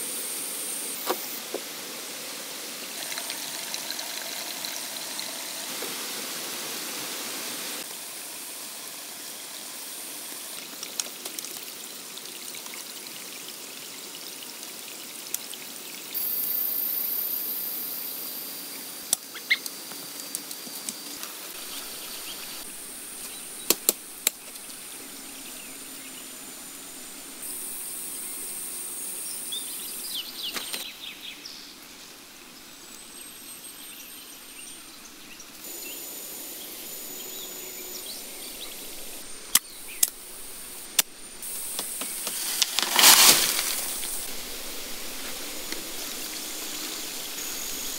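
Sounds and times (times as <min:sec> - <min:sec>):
bird calls: 0:19.3 - 0:19.7
high insect buzzing: 0:35.6 - 0:47.9
stream rushing: 0:35.7 - 0:47.9.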